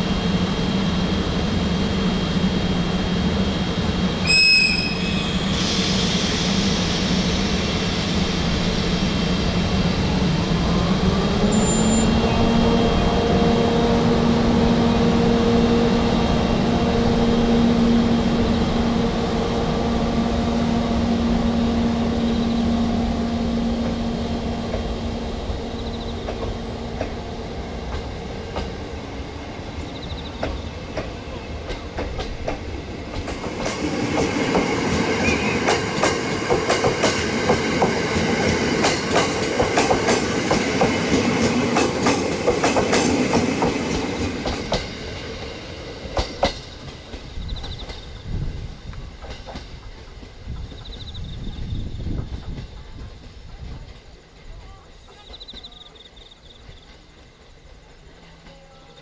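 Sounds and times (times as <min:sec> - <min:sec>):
electric locomotive hum: 0:00.0 - 0:59.0
train wheels clattering over rail joints: 0:29.8 - 0:58.6.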